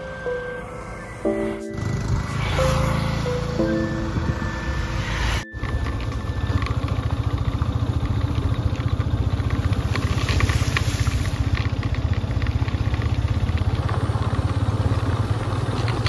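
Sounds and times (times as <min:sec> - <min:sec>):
motorcycle engine cruising: 0:00.2 - 0:16.0.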